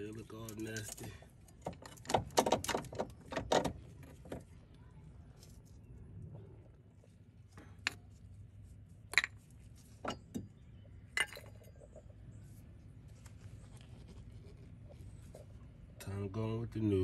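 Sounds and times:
metal clinks and knocks: 0.4s - 4.4s, 9.1s - 12.1s.

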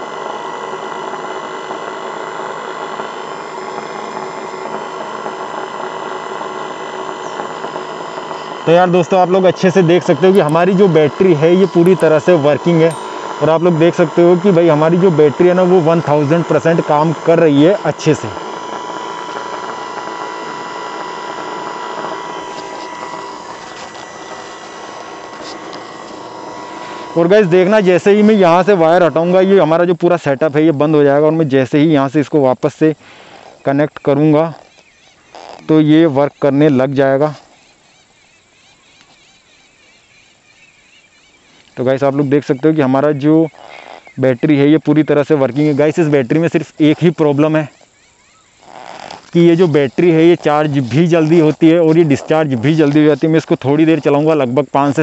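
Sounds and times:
high whine: 0.0s - 40.4s
electrical hum: 0.0s - 55.0s.

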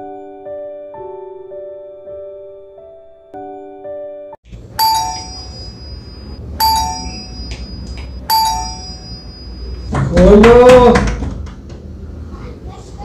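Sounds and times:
doorbell chime: 4.7s - 10.0s.

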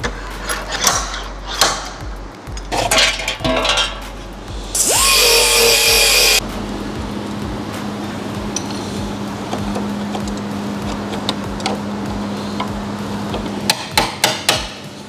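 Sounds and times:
steady low hum: 0.0s - 14.0s
pneumatic air tool hissing: 4.6s - 6.4s.

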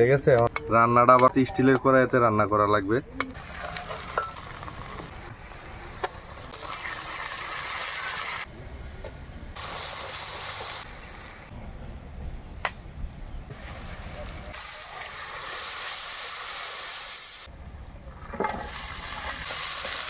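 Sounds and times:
onions sizzling in oil: 9.6s - 11.5s, 13.5s - 17.5s, 18.7s - 20.0s.

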